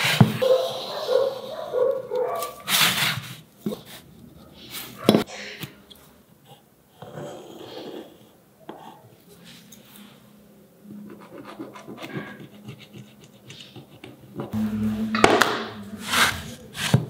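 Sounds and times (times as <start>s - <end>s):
pencil scratching on wood: 11.1s - 14.6s
compass scraping wood: 11.6s - 17.0s.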